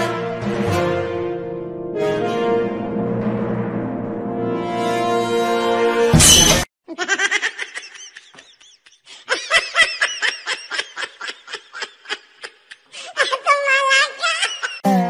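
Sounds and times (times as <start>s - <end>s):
orchestral music with timpani: 0.0s - 6.2s
high-pitched giggling laughter: 6.9s - 14.8s.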